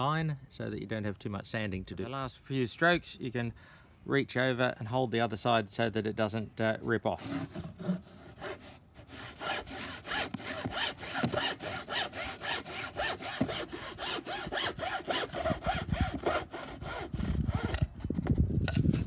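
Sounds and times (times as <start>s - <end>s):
hacksaw cutting plywood: 7.2s - 17.9s.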